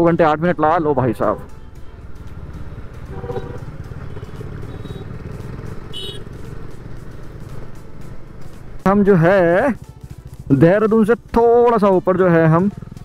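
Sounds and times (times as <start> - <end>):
motorcycle engine running: 0.0 - 13.0
wind and road noise: 0.0 - 13.0.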